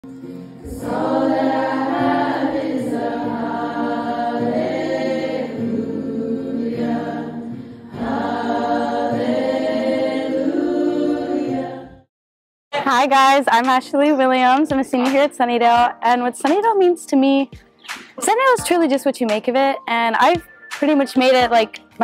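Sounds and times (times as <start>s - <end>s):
choir singing held chords: 0.1s - 12.1s.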